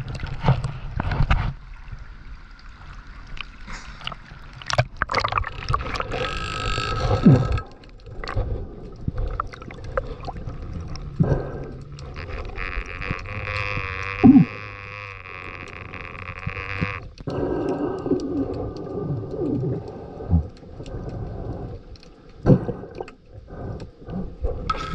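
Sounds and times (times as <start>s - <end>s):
underwater clicks and gurgles: 0.0s - 24.9s
water sloshing against camera: 0.0s - 24.9s.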